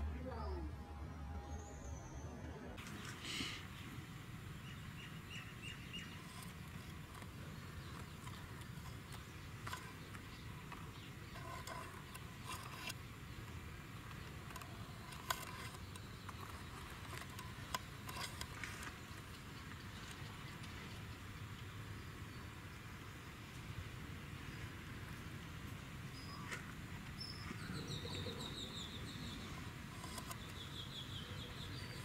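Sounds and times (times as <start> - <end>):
bird chirps: 27.2 - 32.0.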